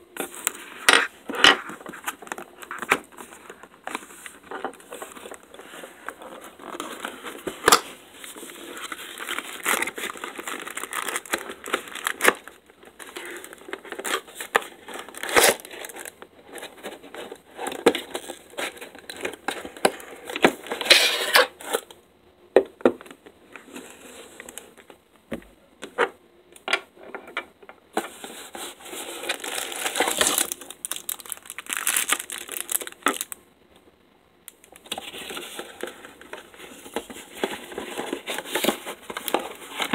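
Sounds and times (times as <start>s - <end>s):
plastic bag crinkling: 1.9s - 16.2s, 29.1s - 33.4s.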